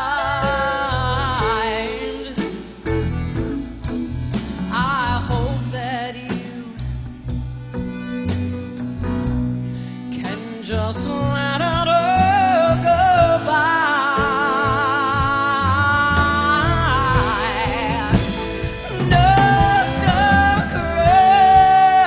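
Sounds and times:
woman singing with vibrato: 0.0 - 3.3, 4.7 - 7.1, 10.1 - 22.0
live band music: 0.0 - 22.0.

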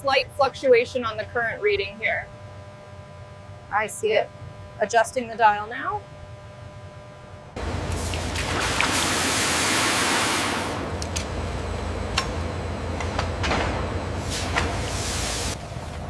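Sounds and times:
loud rushing hiss: 7.9 - 11.0, 14.2 - 15.6.

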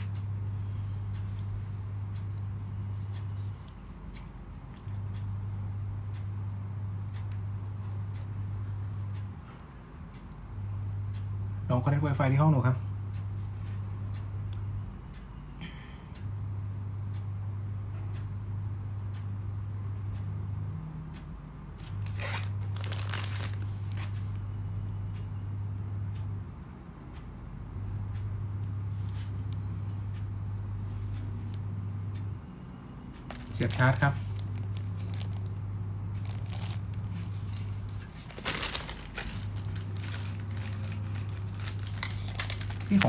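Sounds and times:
low electrical hum: 0.0 - 43.0
crinkling and clicking handling noises: 21.8 - 24.4, 33.2 - 43.0.

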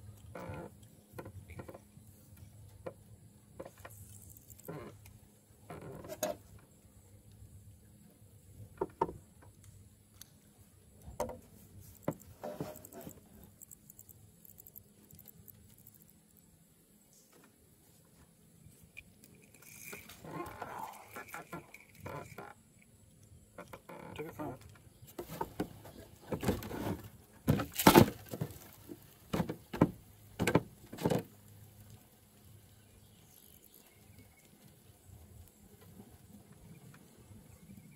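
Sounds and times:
fishing rod and reel handled: 3.6 - 5.2, 11.8 - 16.1, 18.9 - 22.6.

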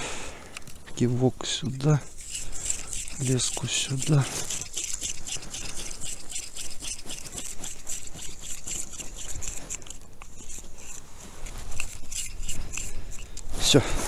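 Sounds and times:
rustling: 0.4 - 14.0
fishing reel clicking: 2.1 - 11.0.

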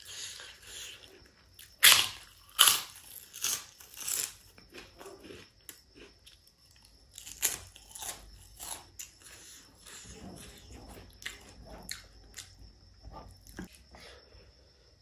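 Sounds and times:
crisp crunching of fried snack: 1.8 - 9.2
soft chewing: 4.4 - 14.2.

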